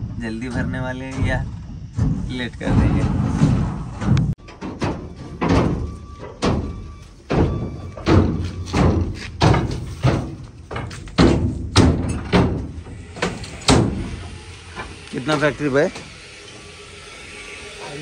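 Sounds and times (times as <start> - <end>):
heavy goods thudding onto truck: 1.1 - 15.0.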